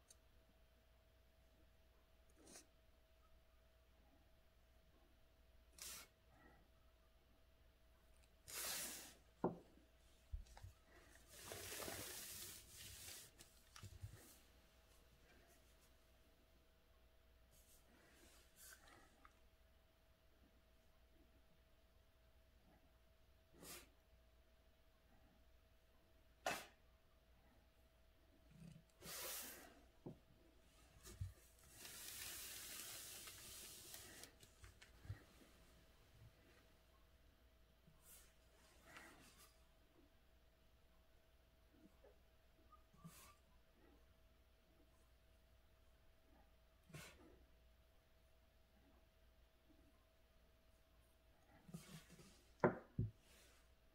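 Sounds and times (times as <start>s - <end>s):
paper rustling: 11.2s - 14.1s
paper sliding on desk: 11.2s - 14.4s, 31.0s - 35.3s.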